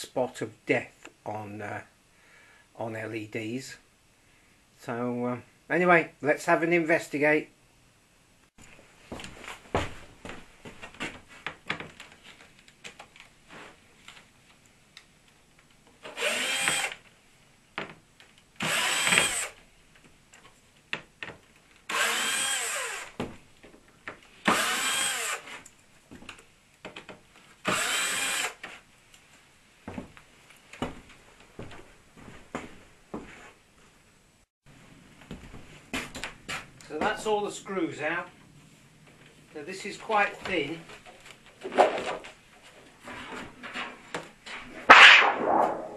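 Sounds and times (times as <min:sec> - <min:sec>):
cordless drill motor bursts: 0:16.1 - 0:17.0, 0:18.6 - 0:19.6, 0:21.9 - 0:23.2, 0:24.4 - 0:25.5, 0:27.6 - 0:28.6.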